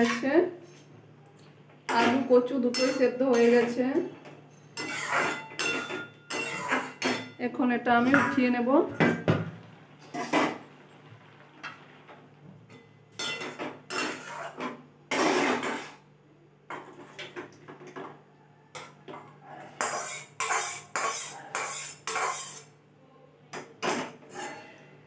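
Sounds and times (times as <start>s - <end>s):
spatula scraping metal pan: 0.0s - 0.8s, 1.9s - 7.3s, 13.2s - 16.0s, 19.8s - 22.7s, 23.8s - 24.8s.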